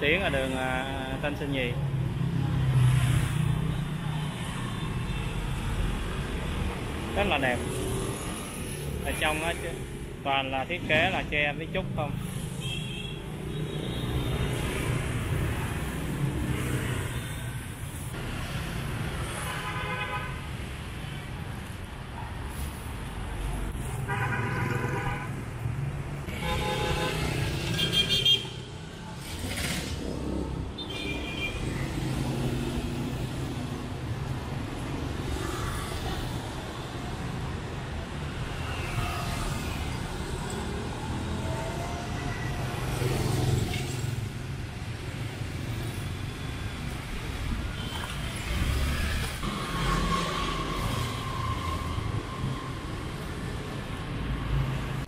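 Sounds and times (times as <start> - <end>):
traffic engines humming: 0.0 - 55.0
vehicle horns honking: 24.1 - 25.4, 26.3 - 28.6.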